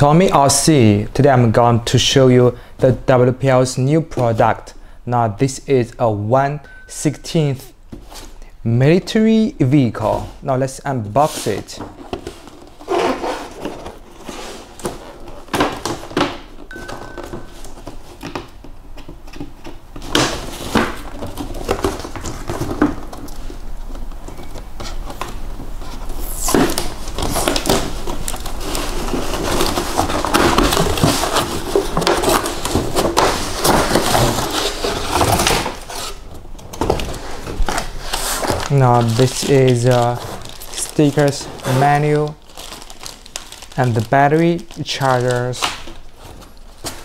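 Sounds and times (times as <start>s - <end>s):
cardboard rustling and scraping: 10.0s - 10.4s, 11.1s - 47.0s.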